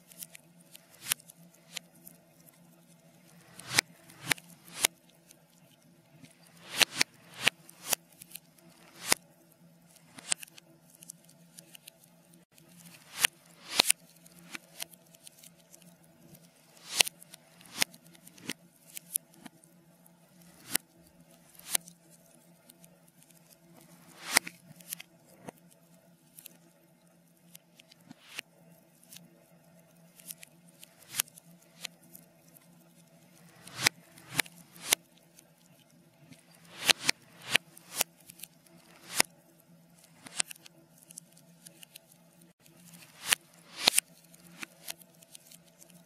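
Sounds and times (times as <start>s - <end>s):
reversed fire crackling pops: 3.4s - 4.9s, 6.2s - 8.0s, 36.3s - 38.1s.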